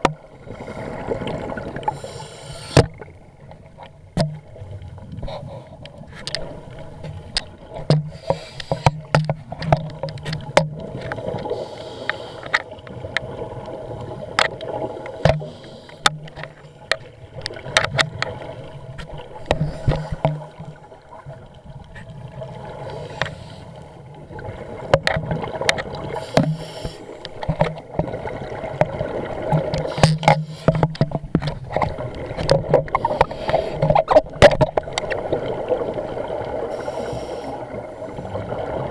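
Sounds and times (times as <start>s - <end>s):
bubbling exhaled air underwater: 0.0s - 3.2s
sharp clicks and knocks: 5.8s - 11.1s, 24.9s - 28.1s, 29.5s - 35.2s.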